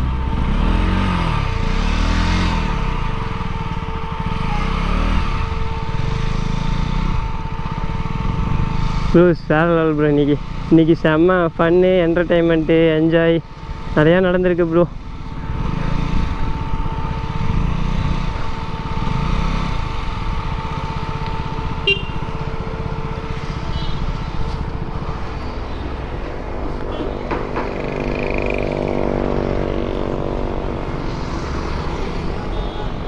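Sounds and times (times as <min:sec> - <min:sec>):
motorcycle engine running: 0:00.0 - 0:33.0
road noise: 0:00.0 - 0:33.0.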